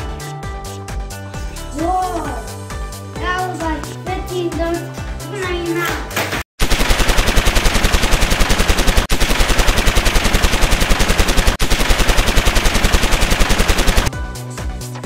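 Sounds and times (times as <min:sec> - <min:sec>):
rapid machine-gun fire: 0:06.6 - 0:14.1.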